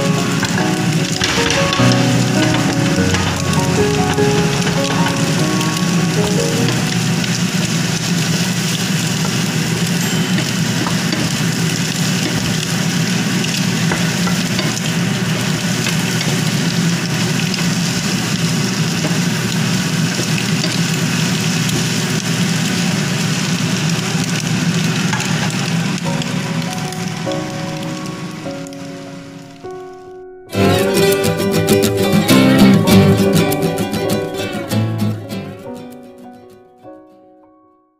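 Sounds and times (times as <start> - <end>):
vegetables sizzling in a frying pan: 0.0 - 29.4.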